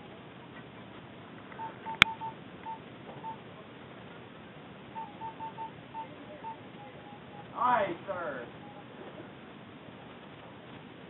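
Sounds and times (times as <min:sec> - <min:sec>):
short electronic beeps: 0:01.6 - 0:03.4, 0:05.0 - 0:07.6.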